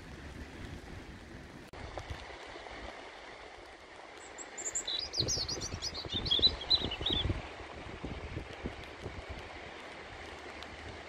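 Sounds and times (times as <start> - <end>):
sea and wind hiss: 0.0 - 11.0
small songbird singing: 4.2 - 7.4.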